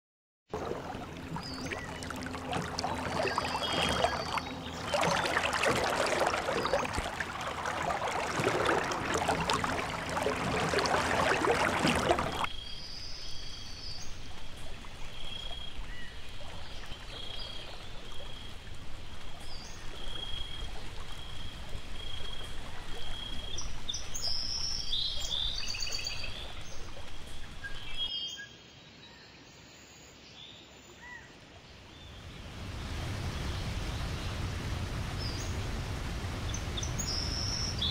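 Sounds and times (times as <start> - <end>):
running water: 0.5 - 12.5, 13.3 - 28.1.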